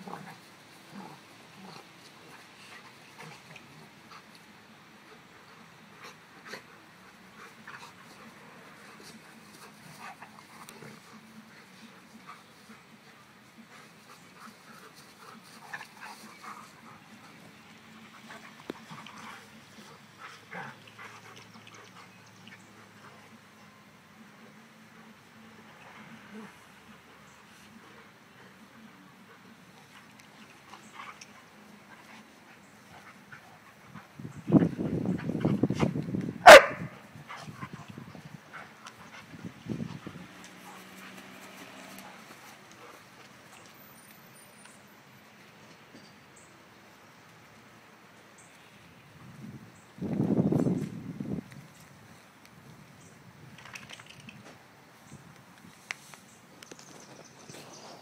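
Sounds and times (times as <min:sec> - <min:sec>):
dogs growling: 0:00.0 - 0:04.2
dog barking: 0:36.4 - 0:37.0.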